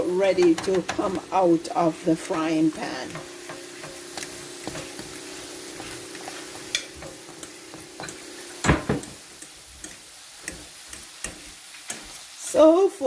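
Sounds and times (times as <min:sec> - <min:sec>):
frying sizzle: 0:00.0 - 0:13.0
fork scraping frying pan: 0:02.1 - 0:12.2
metal on metal knocks: 0:06.6 - 0:09.2.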